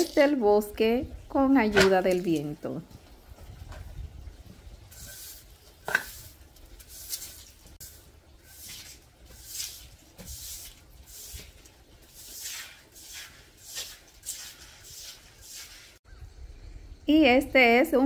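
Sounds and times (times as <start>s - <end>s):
push broom swishing water: 1.4s - 2.7s, 3.3s - 16.0s.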